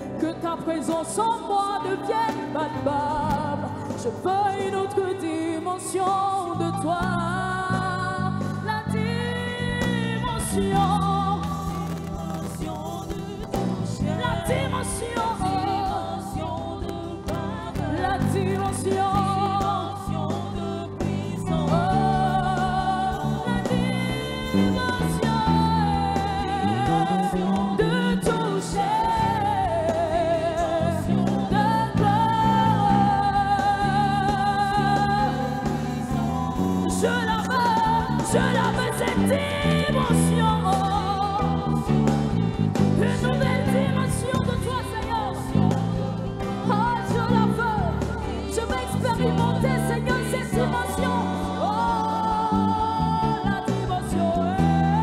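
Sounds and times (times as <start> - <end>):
band with steady bass line: 0.0 - 55.0
woman singing gospel: 0.0 - 55.0
choir singing: 10.2 - 55.0.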